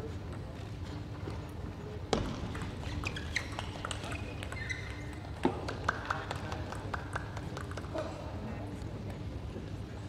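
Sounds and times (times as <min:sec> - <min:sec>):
shoes squeaking on floor: 0:02.6 - 0:05.4.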